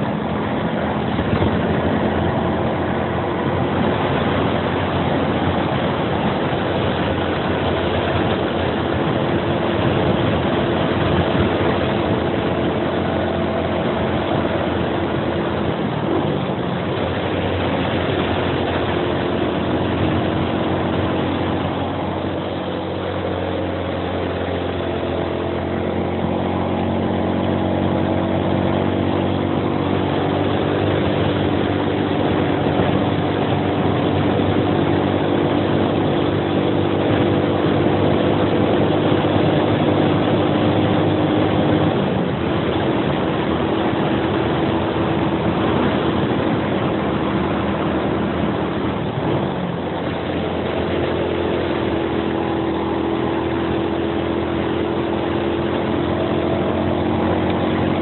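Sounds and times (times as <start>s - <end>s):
motorcycle engine running under load: 0.0s - 58.0s
wind rushing over microphone: 0.0s - 58.0s.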